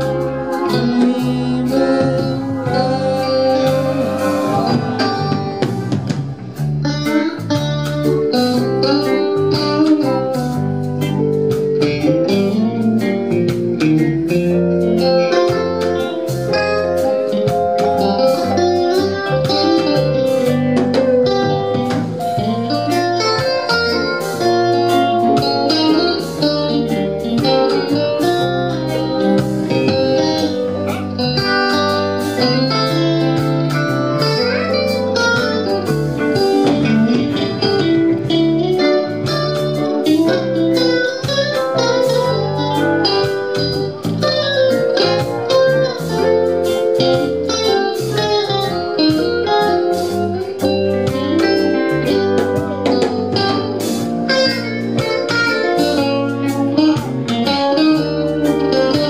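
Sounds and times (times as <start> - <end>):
bass: 0.0 - 59.0
electric guitars: 0.0 - 59.0
steady drum beat: 0.0 - 59.0.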